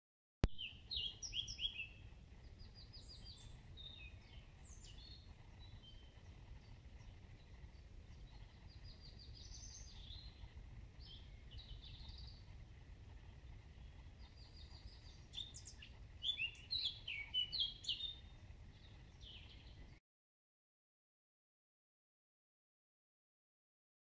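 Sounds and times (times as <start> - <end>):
songbirds singing: 0.5 - 20.0
steady low rumble: 0.8 - 16.7.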